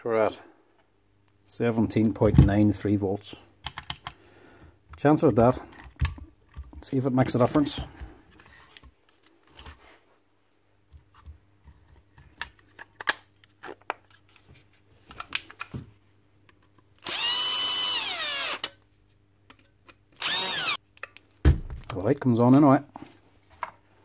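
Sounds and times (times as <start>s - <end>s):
cordless drill whining: 17.0s - 18.7s, 20.2s - 20.8s.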